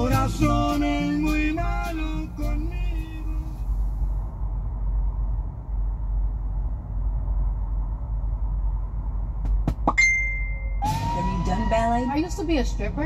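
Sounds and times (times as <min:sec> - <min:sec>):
truck engine idling: 0:00.0 - 0:10.0.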